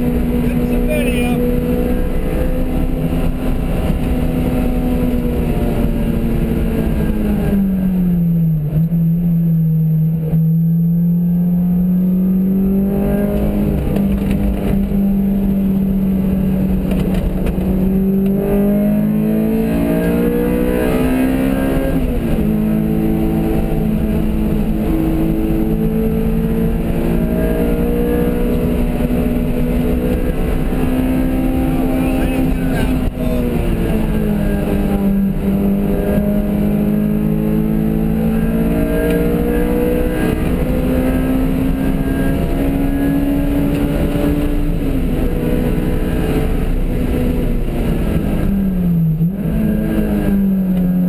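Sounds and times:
car engine from inside cabin: 0.0s - 51.0s
road rumble: 0.0s - 51.0s.

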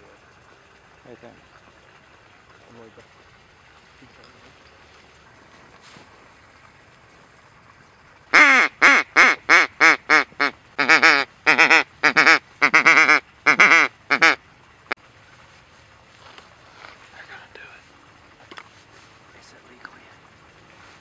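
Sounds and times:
duck call quacks: 8.3s - 14.4s.

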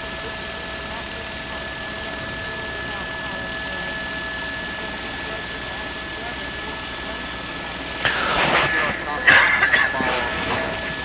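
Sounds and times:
helicopter cabin engine and rotor: 0.0s - 7.9s.

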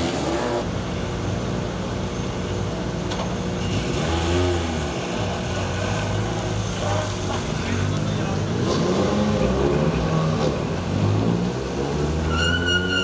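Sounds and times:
car engines idling: 0.0s - 12.0s.

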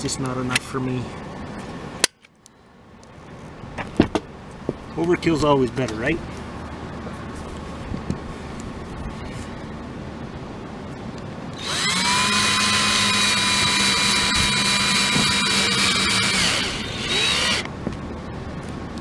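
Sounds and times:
cordless drill driving a screw: 11.6s - 17.7s.

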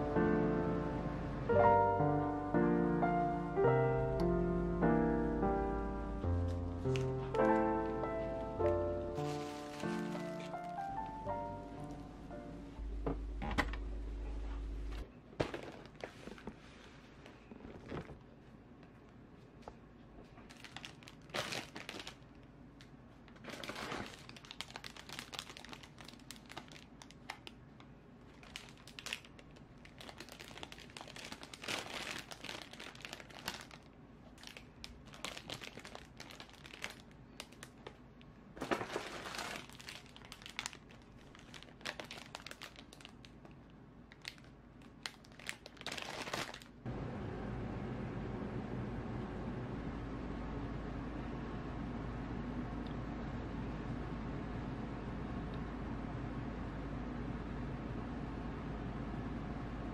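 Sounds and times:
steady low hum: 0.0s - 23.8s, 46.7s - 59.9s
cellophane bags crinkling: 6.5s - 12.0s, 20.4s - 22.5s, 23.3s - 27.6s, 28.3s - 38.0s, 38.6s - 46.8s.

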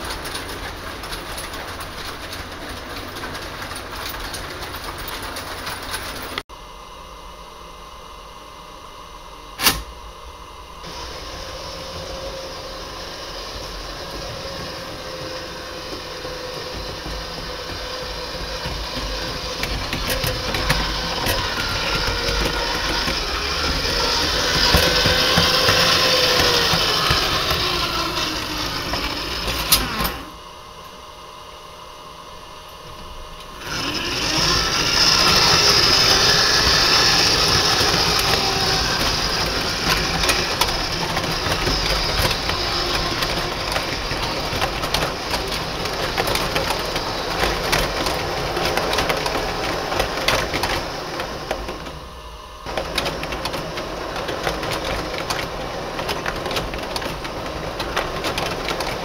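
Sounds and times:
model train rattle and motor whir: 0.0s - 6.4s, 10.8s - 30.4s, 33.0s - 59.0s
steady running noise: 10.6s - 30.8s, 32.4s - 59.0s.

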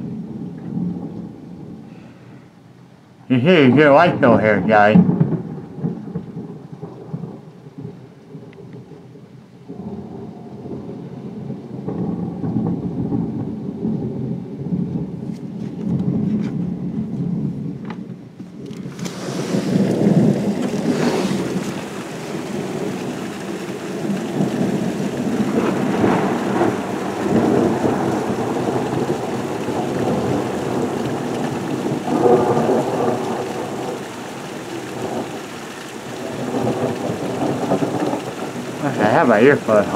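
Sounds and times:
heavy rain hiss: 0.0s - 8.5s, 18.6s - 39.9s
thunder rumbling: 0.0s - 39.9s.

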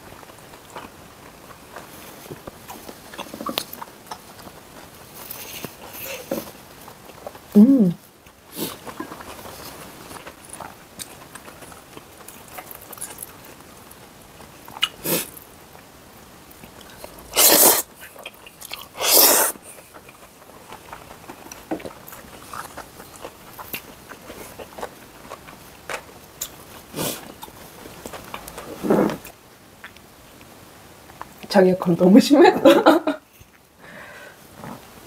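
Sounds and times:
chewing: 0.2s - 15.9s, 16.5s - 31.5s.

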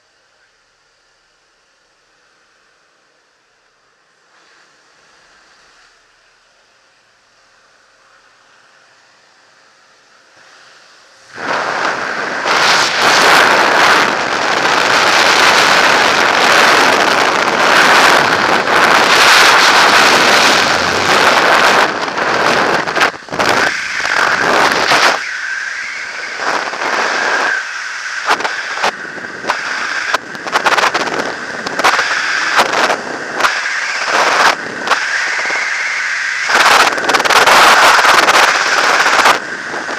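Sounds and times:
wind rushing over microphone: 11.2s - 39.9s.

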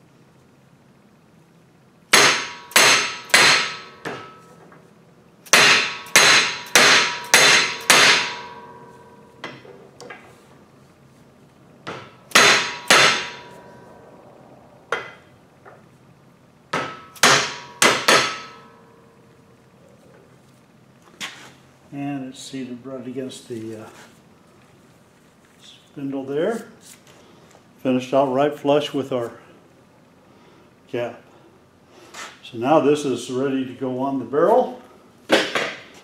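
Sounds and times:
mallet striking steel tube: 2.1s - 4.4s, 5.5s - 9.6s, 11.8s - 13.9s, 16.7s - 18.9s.

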